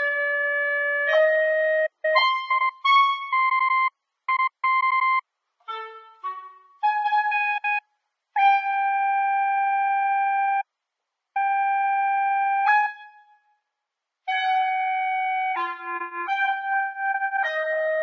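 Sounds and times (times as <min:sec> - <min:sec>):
clarinet long held notes: 0:00.0 - 0:03.9, 0:05.7 - 0:07.8, 0:08.4 - 0:10.6, 0:14.3 - 0:18.0.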